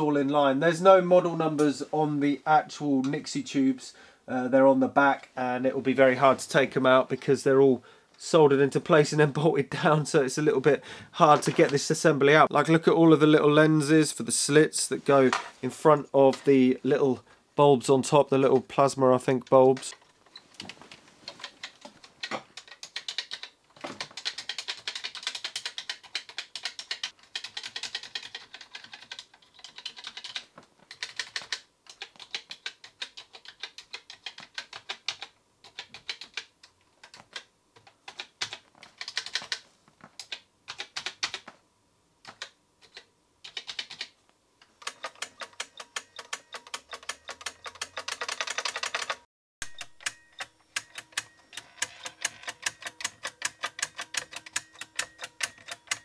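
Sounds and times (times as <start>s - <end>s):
calculator keys clacking: 21.3s - 39.6s, 44.8s - 56.0s.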